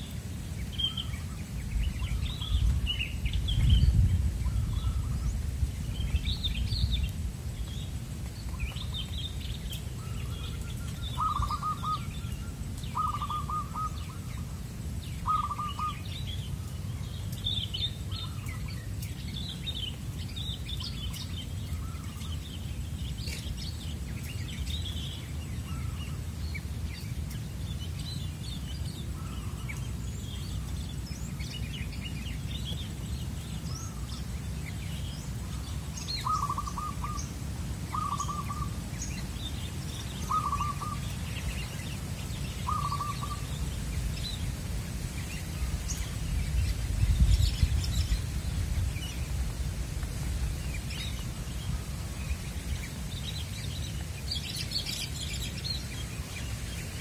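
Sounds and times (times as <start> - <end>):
small birds chirping: 0.0 - 57.0
dove cooing: 11.2 - 12.1, 13.0 - 14.2, 15.2 - 16.0.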